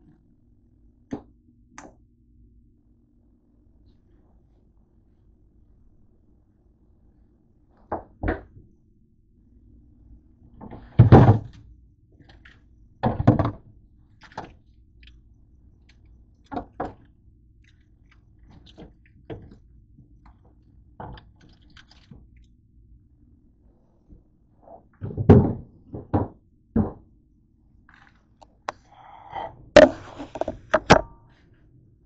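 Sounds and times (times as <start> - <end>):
items knocking in drawer: 29.8 - 31.1.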